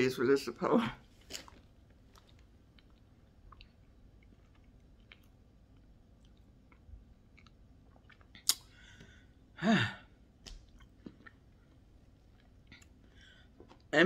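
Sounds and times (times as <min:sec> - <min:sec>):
person chewing: 0:01.1 - 0:09.2, 0:10.4 - 0:13.9.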